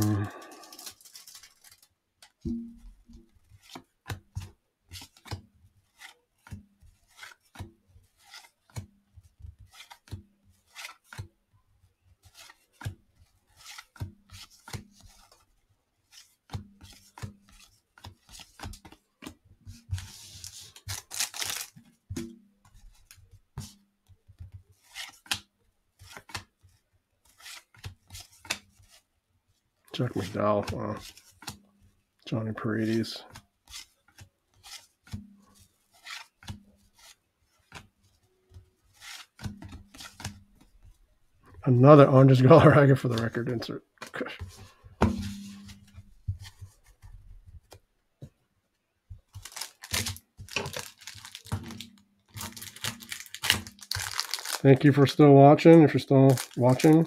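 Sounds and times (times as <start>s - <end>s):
card rustle: 0.0s - 2.4s, 20.0s - 21.9s, 49.2s - 57.0s
cards being flipped by hand: 0.1s - 11.3s, 12.2s - 29.0s, 30.1s - 31.6s, 32.8s - 41.0s, 44.0s - 48.3s, 49.2s - 55.1s, 55.7s - 57.0s.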